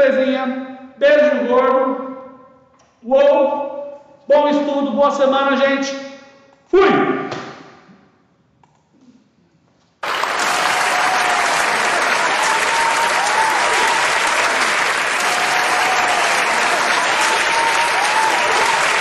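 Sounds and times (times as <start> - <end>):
large crowd clapping: 10.0 - 19.0.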